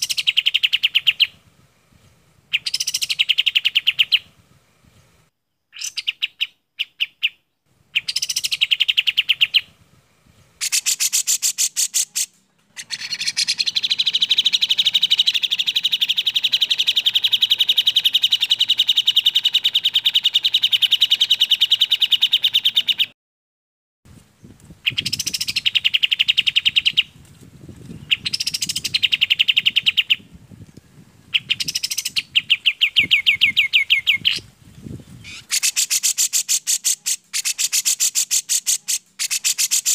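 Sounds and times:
bulbuls singing: 0.0 - 1.4, 7.9 - 9.7, 10.3 - 23.1, 24.8 - 39.9.

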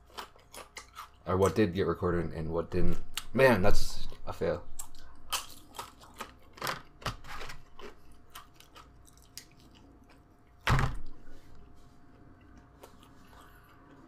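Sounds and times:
chewing crunchy chip: 0.0 - 1.7, 4.0 - 10.6, 12.1 - 14.0.

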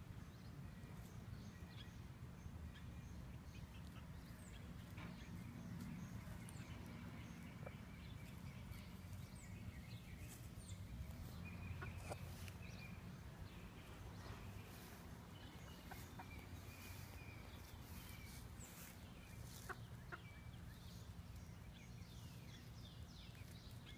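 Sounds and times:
hens clucking softly: 14.7 - 20.3.

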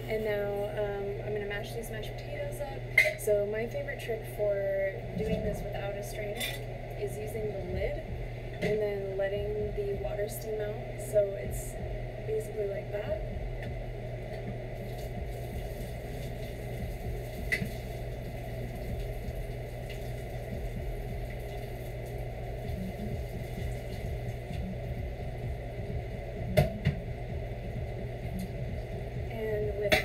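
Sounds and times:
steady low hum: 0.0 - 30.0
water running into a sink: 14.8 - 24.6.

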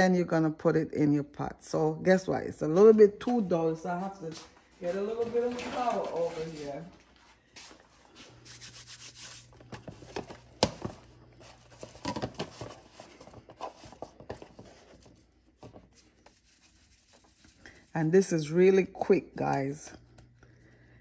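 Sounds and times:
hand scraping flour in plastic tub: 4.8 - 6.9, 8.3 - 9.7.

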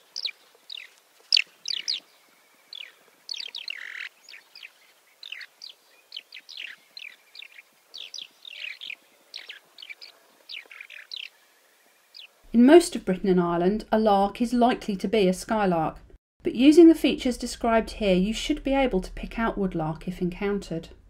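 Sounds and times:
skylark chirping: 0.0 - 11.4, 12.1 - 12.3.

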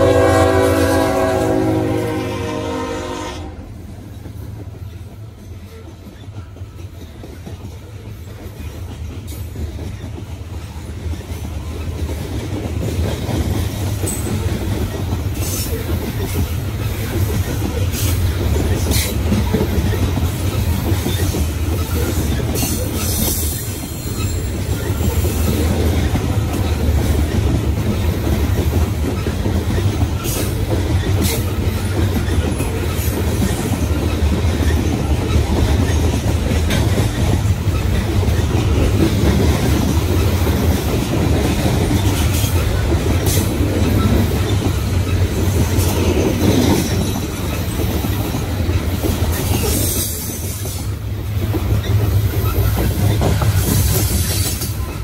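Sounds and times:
train wheels rumbling and clacking: 0.0 - 55.0
high wheel squeals: 21.1 - 26.1.

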